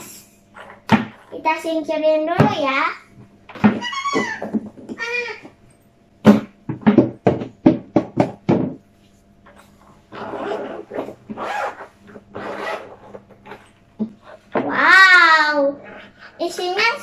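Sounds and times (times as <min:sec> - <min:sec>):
zipper being unzipped: 0:10.1 - 0:13.7.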